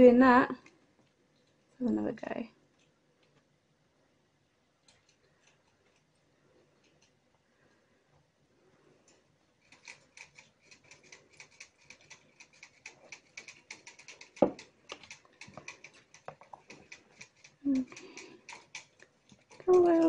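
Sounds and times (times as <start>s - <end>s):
metal tongs clicking and scratching: 9.1s - 20.0s.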